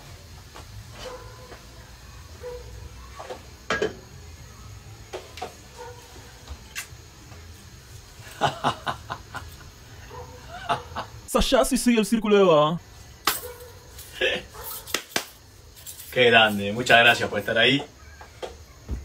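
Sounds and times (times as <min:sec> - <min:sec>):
man laughing: 0:08.2 - 0:09.6, 0:10.4 - 0:11.2, 0:14.2 - 0:14.5.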